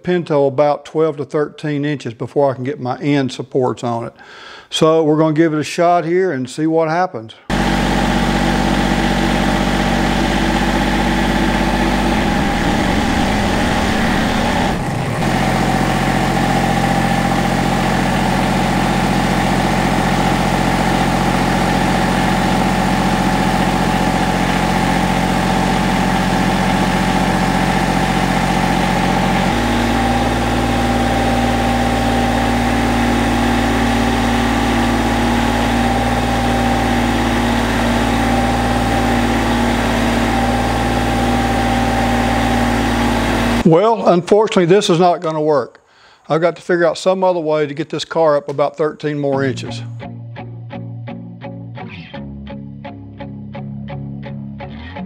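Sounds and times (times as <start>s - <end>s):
tractor diesel engine running: 7.5s - 43.6s.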